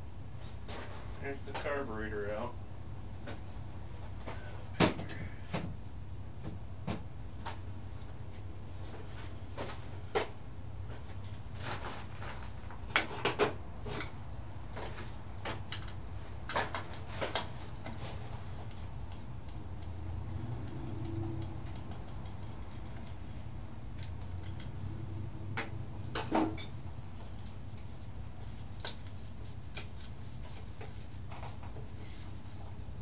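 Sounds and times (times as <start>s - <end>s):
steady low hum: 0.0s - 33.0s
hand tools clicking and knocking: 20.6s - 23.2s.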